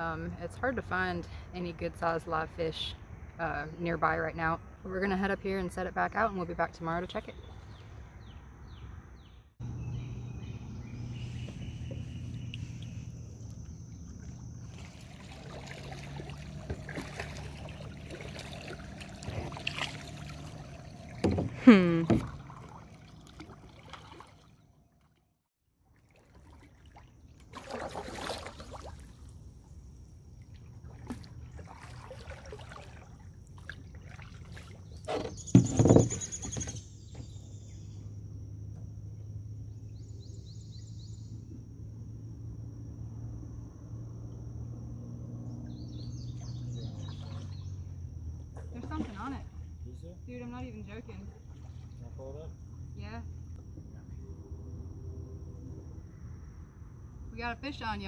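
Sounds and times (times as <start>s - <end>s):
water sloshing against hulls: 9.6s - 39.6s, 45.5s - 54.8s
paddle strokes: 11.0s - 24.5s
short knocks or squeaks: 35.0s - 37.4s.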